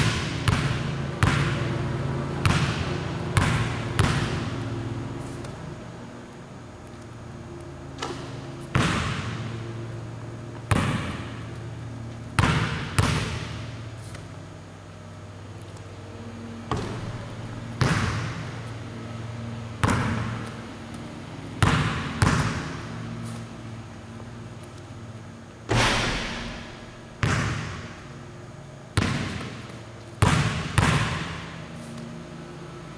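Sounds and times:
basketball bouncing on wooden floor: 0.0s - 4.7s, 8.0s - 9.6s, 10.5s - 11.6s, 12.2s - 13.8s, 16.7s - 18.6s, 19.8s - 20.6s, 21.6s - 22.8s, 25.7s - 27.9s, 29.0s - 31.6s
steady low hum: 0.0s - 32.9s.

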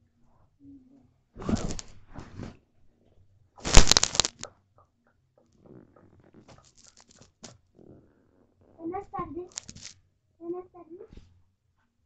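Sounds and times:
loud rustling scuffle: 1.4s - 2.4s, 3.6s - 4.4s
plastic toys tapping and rustling: 3.6s - 4.4s, 6.5s - 7.6s, 9.3s - 10.0s.

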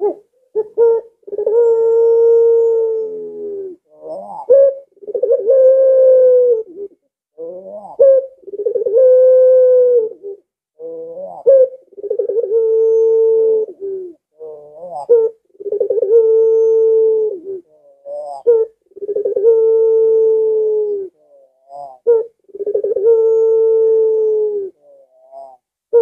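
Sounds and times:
dove cooing: 0.0s - 26.0s.

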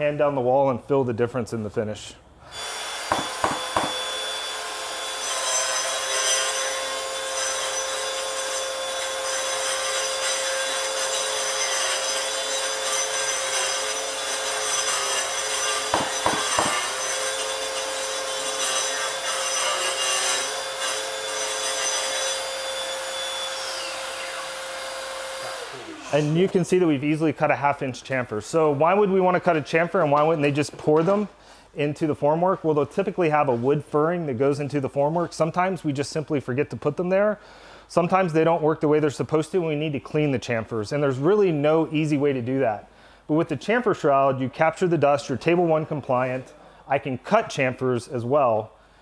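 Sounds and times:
concrete grinder grinding: 12.5s - 20.7s, 24.2s - 26.6s.

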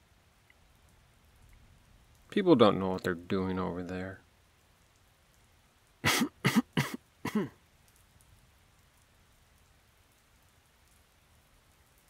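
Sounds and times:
faint rain patter: 0.0s - 12.0s
man coughing: 6.0s - 7.6s.

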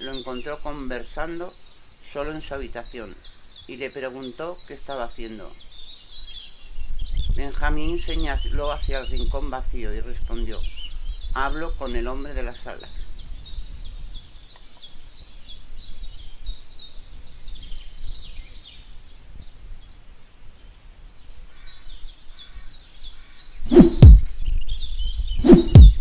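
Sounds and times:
low background noise: 0.0s - 24.8s
birds chirping: 0.0s - 26.0s
deep falling thumps: 23.7s - 24.3s, 25.4s - 26.0s.

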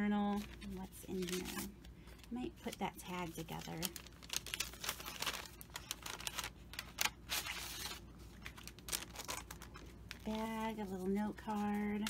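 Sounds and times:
paper crackles: 0.2s - 12.0s
paper rustling and crinkling: 0.2s - 12.0s.

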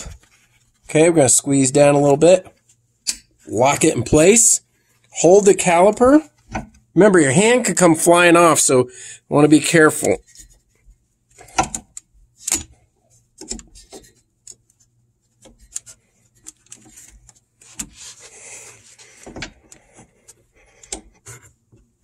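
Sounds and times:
gloved hands rubbing: 14.7s - 19.2s
metal clicks and scrapes: 15.4s - 21.6s.

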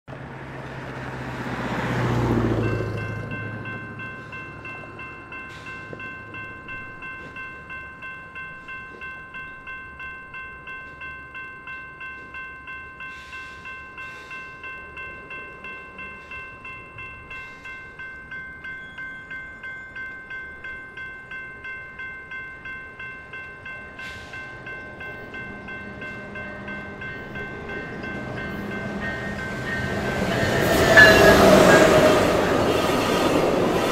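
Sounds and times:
passing vehicle: 0.1s - 5.0s
train rumble: 0.1s - 33.9s
level crossing bell ringing: 2.5s - 33.9s.

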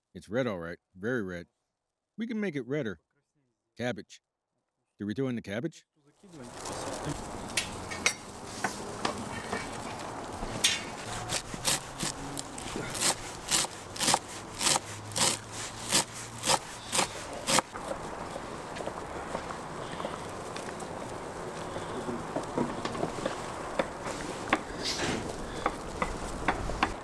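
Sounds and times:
knife chopping on wooden board: 12.9s - 17.7s.

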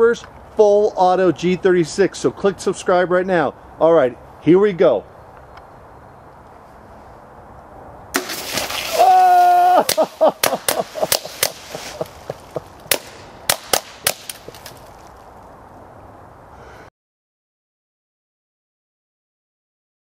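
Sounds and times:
bullets striking plastic bottles: 12.9s - 14.8s.

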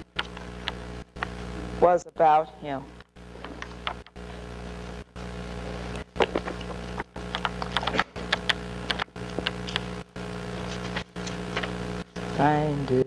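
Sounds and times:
steady electrical hum: 0.0s - 13.0s
book pages rustling and turning: 6.2s - 9.9s, 10.6s - 11.8s.

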